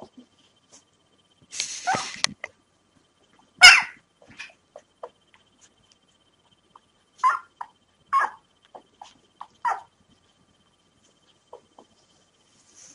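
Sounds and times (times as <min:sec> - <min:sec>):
puppy crying: 0:07.2 - 0:09.9, 0:11.5 - 0:12.0
puppies squeaking and whimpering: 0:11.5 - 0:12.0.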